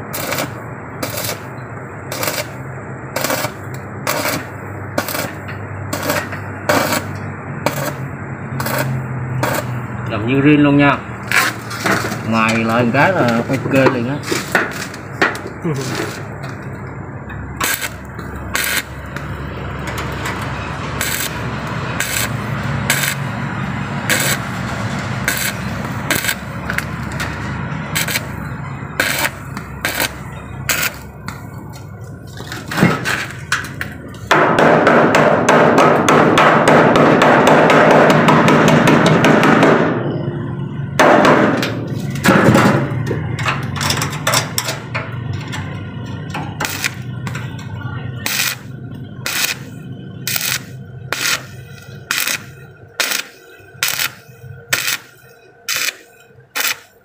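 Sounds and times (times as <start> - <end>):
stick welder crackling: 0.0 - 9.9, 11.2 - 34.2, 46.0 - 47.6, 48.2 - 57.0.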